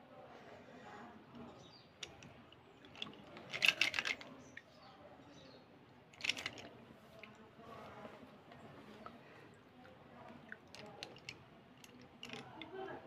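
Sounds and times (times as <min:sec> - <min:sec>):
slate pencils clattering: 0:02.9 - 0:04.4, 0:06.2 - 0:06.7, 0:10.6 - 0:12.6.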